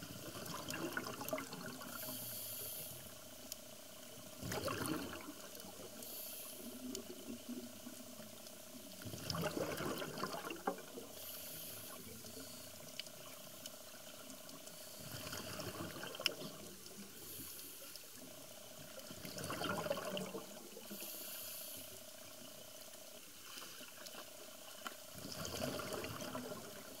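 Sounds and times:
gurgle of exhaled bubbles: 0.1 - 2.2, 4.4 - 6.0, 9.0 - 11.1, 15.0 - 16.8, 19.0 - 20.9, 25.1 - 27.0
regulator inhale hiss: 1.9 - 3.4, 6.0 - 7.0, 11.1 - 13.1, 14.6 - 15.7, 17.2 - 18.2, 20.8 - 22.4.

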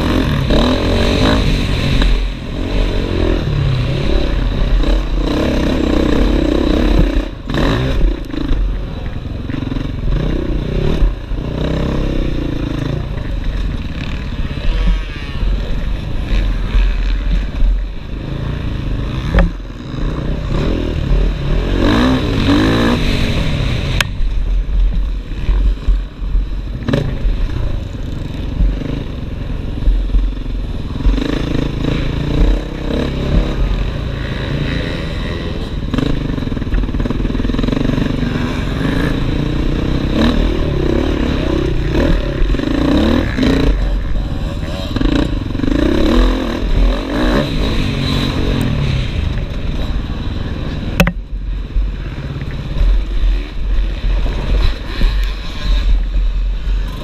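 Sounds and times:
motorcycle engine revving: 0.0 - 57.0
sharp knocks: 51.0 - 51.2.

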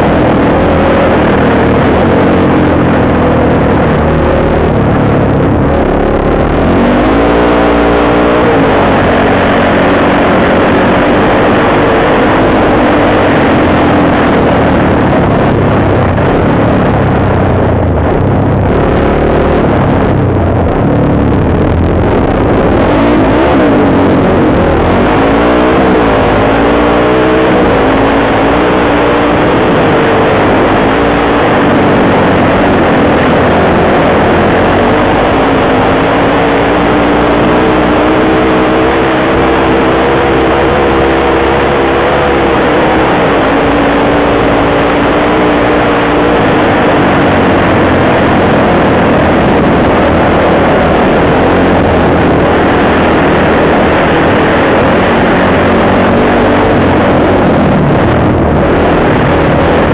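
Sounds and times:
dirt bike engine revving: 22.2 - 59.9.

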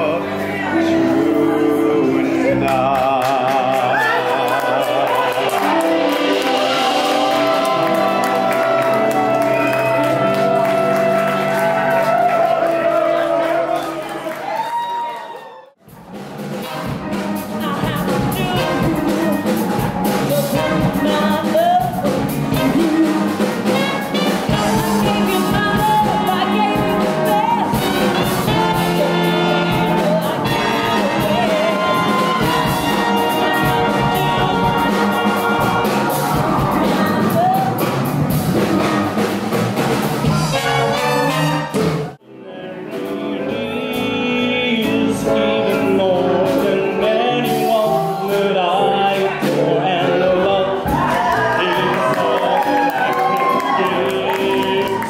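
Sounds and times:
trombone and trumpet: 3.9 - 14.3, 16.0 - 55.0
drums bass and guitar: 15.8 - 42.2
woman singing: 17.5 - 19.6, 20.3 - 35.9.

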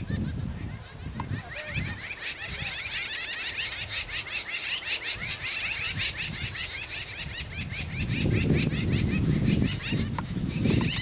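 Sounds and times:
birds chattering: 0.0 - 11.0.

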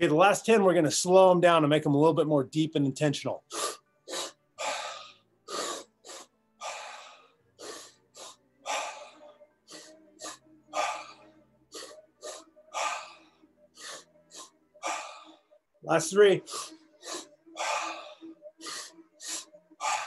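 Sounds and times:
man breathing forcefully: 3.5 - 15.5, 16.4 - 20.0.

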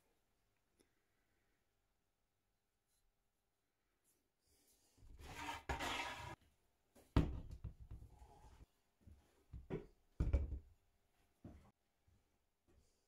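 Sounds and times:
scrape: 4.0 - 6.4.

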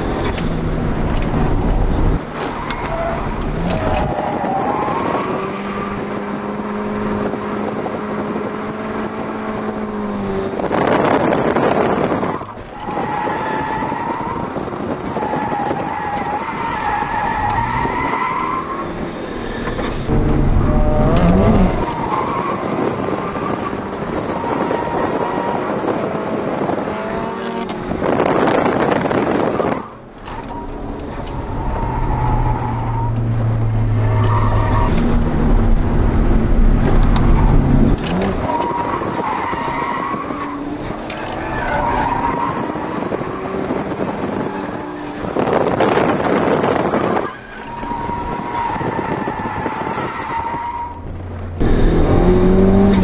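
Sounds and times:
car engine revving high: 18.4 - 28.6, 51.1 - 53.0.

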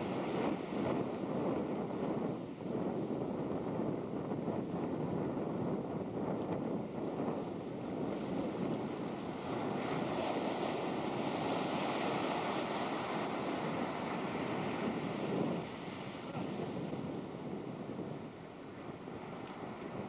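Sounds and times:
wind buffeting microphone: 0.0 - 20.0
ocean surf breaking: 7.6 - 20.0.

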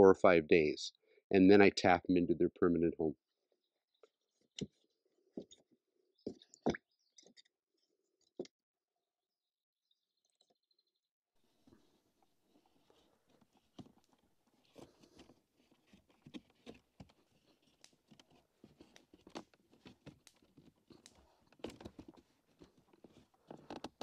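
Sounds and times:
wood clicks and rustles: 13.3 - 24.0.

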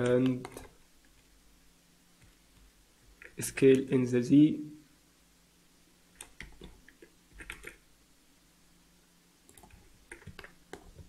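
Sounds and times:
keyboard and mouse clicks: 0.0 - 1.2, 6.1 - 7.8, 9.5 - 11.0.

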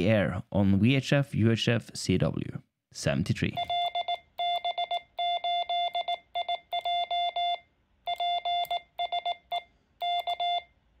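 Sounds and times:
morse code beeps: 3.6 - 10.7.

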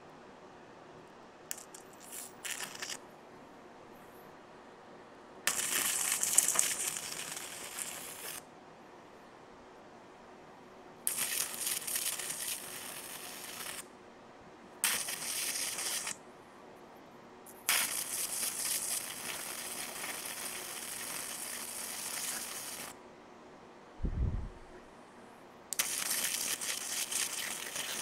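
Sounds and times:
electric arcs crackling and hissing: 1.5 - 3.0, 5.5 - 8.5, 11.1 - 13.9, 14.8 - 16.2, 17.5 - 23.0, 25.8 - 28.0.

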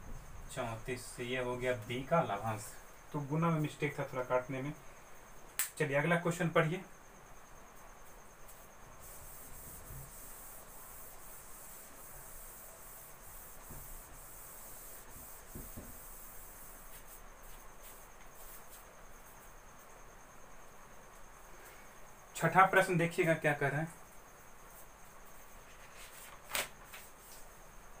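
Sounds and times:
high pulsing insect trill: 0.0 - 28.0
duster rubbing on whiteboard: 9.0 - 18.9.

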